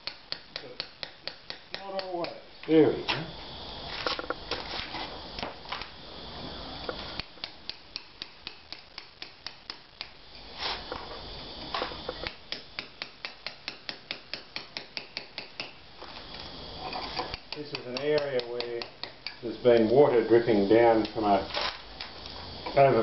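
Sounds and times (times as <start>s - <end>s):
chisel scraping mortar: 16.8s - 19.4s.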